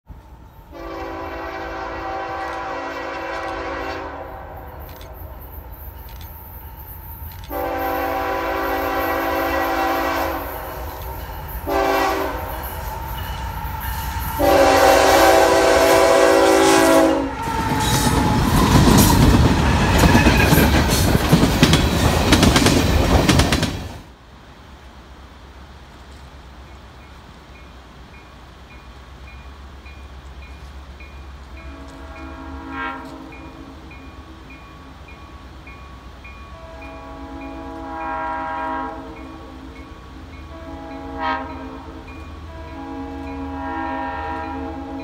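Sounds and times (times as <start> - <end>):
locomotive air horn blasts: 0.7 - 5.2, 7.5 - 13.0, 13.6 - 18.7, 31.6 - 33.8, 36.5 - 39.8, 40.4 - 45.0
train wheels clattering on rails: 4.7 - 16.0, 17.3 - 24.1.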